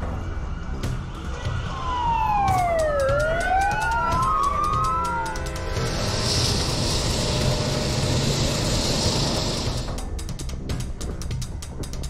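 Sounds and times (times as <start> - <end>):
emergency sirens wailing: 0.0 - 9.8
street traffic: 0.0 - 10.1.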